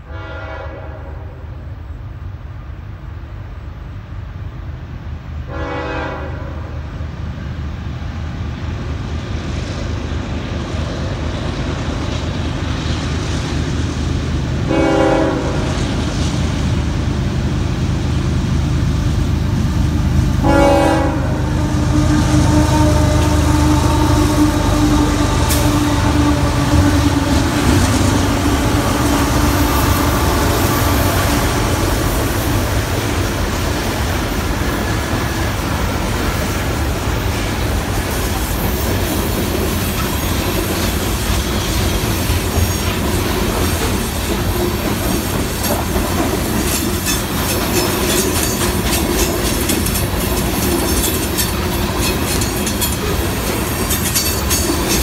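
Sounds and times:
diesel locomotive humming: 0.0 - 55.0
train wheels clicking over rail joints: 21.9 - 55.0.

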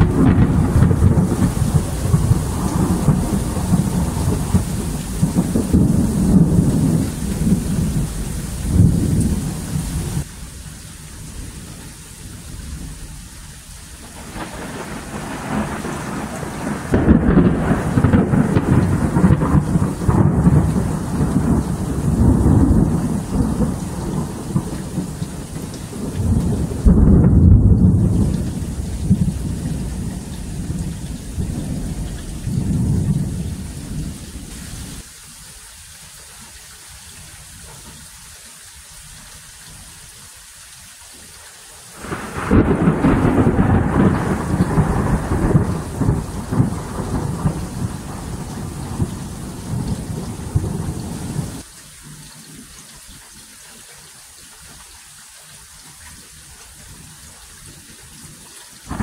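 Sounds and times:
thunder rumbling: 0.0 - 10.3, 14.0 - 35.0, 42.0 - 51.7
steady rain: 0.0 - 59.0.

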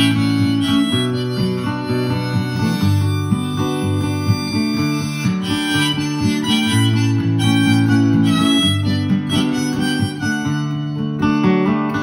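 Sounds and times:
harmonica melody: 0.0 - 12.0
strummed acoustic guitar: 0.0 - 12.0.

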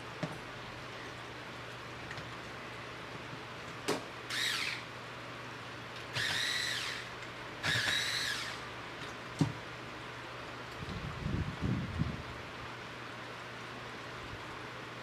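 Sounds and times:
electric screwdriver whirring: 4.3 - 4.9, 6.1 - 8.7.

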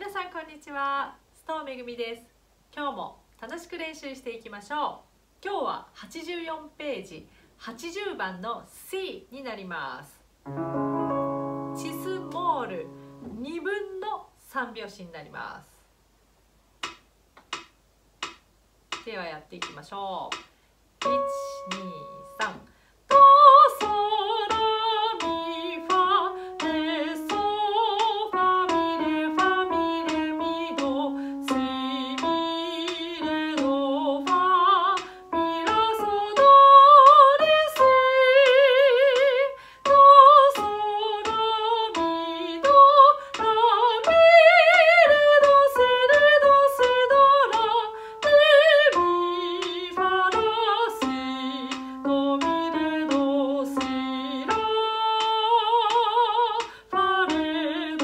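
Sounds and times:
digital piano: 10.4 - 13.5, 21.0 - 55.5
woman singing with vibrato: 11.4 - 13.9, 21.0 - 58.0.

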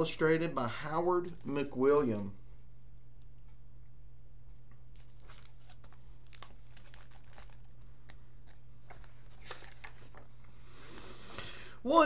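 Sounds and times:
low electrical hum: 0.0 - 12.0
book pages crinkling: 1.1 - 3.0, 4.9 - 10.6.

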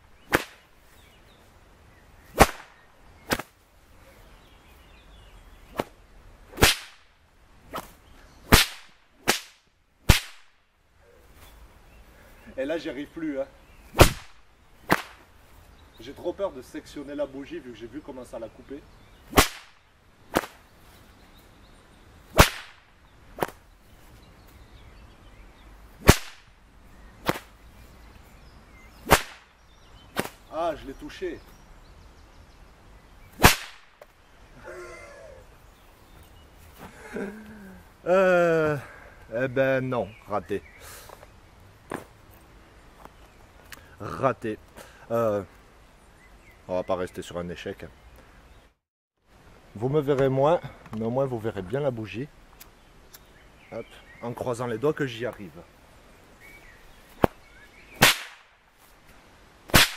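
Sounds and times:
whip cracking: 0.3 - 0.6, 2.3 - 3.6, 5.7 - 10.6, 14.0 - 15.3, 19.3 - 20.6, 22.3 - 23.6, 26.0 - 26.6, 27.2 - 27.6, 29.0 - 30.4, 33.4 - 34.2, 58.0 - 58.6, 59.7 - 59.9.

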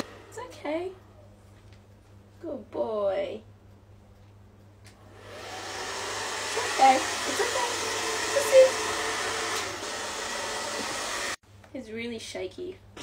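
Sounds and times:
blow dryer blowing: 0.0 - 1.2, 5.0 - 11.4.

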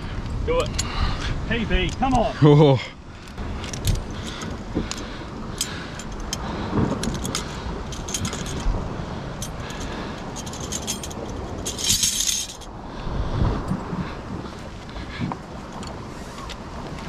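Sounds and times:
wind: 0.0 - 17.0
metal gaff clinking against rock: 0.2 - 1.0, 3.2 - 8.8, 9.4 - 12.7
sea wash: 2.3 - 17.0.

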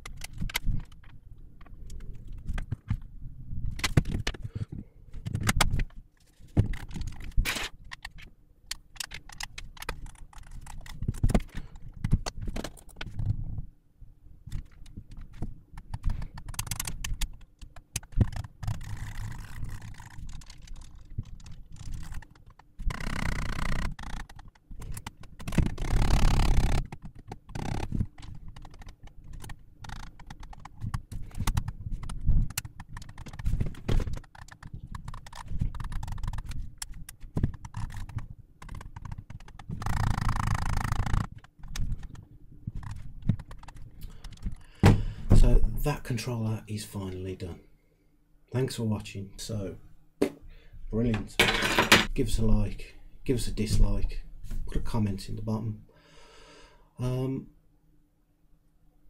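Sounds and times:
plastic parts clicking and clattering: 0.0 - 3.1, 3.7 - 13.5, 14.5 - 45.0.

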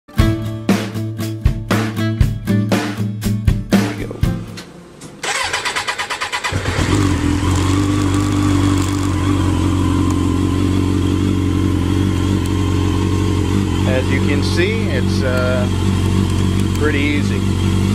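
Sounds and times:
electric starter cranking engine: 5.0 - 17.9
motorcycle engine idling: 5.2 - 17.9.

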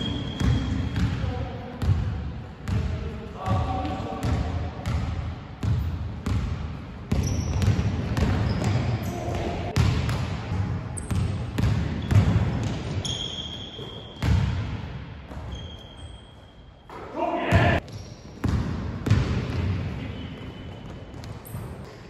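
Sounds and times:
sneaker squeaks: 0.0 - 1.1, 7.1 - 9.8, 11.0 - 14.4, 15.3 - 19.2, 20.0 - 22.0.

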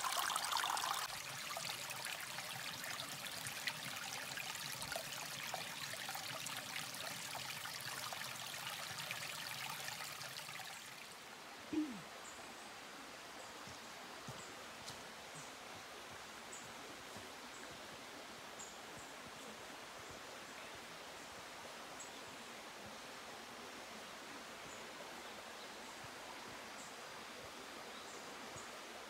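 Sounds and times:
water trickling over rocks: 0.0 - 11.4.

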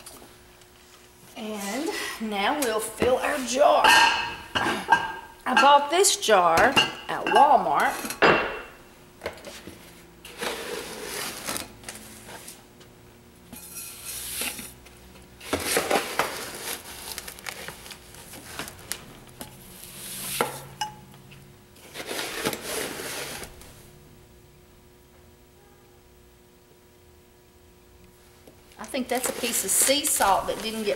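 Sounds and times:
plastic scoop scraping tub: 10.3 - 12.6, 15.4 - 18.8, 21.8 - 23.6, 28.9 - 30.9.

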